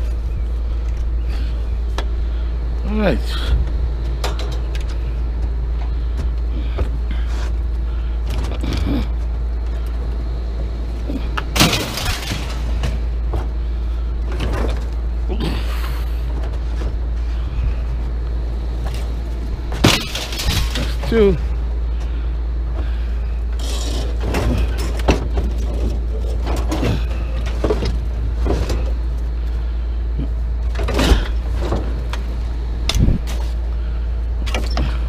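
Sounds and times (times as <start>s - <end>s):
steady low rumble: 0.0s - 35.0s
scrap metal clanking and rattling: 4.0s - 8.9s, 11.1s - 17.5s, 18.8s - 22.0s, 22.9s - 29.6s, 30.3s - 33.6s.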